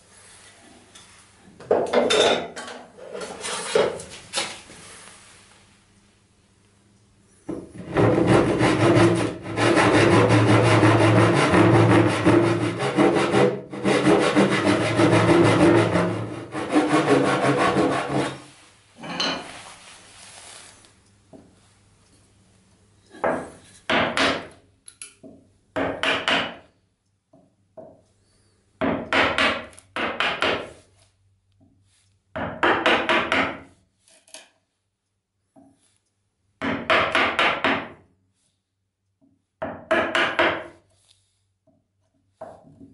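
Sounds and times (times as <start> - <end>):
saw cutting wood: 7.9 - 18.5
chisel paring wood: 23.3 - 24.6, 25.2 - 26.6, 28.8 - 30.8, 32.3 - 33.6, 36.6 - 37.9, 39.6 - 40.7.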